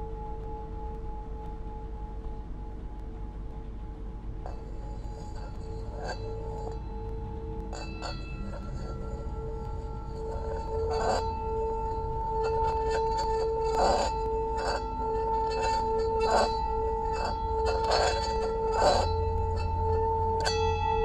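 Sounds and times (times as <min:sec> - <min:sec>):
singing bowl ringing hum: 0:00.0 - 0:21.0
wooden striker scraping rim: 0:04.5 - 0:06.8, 0:07.7 - 0:21.0.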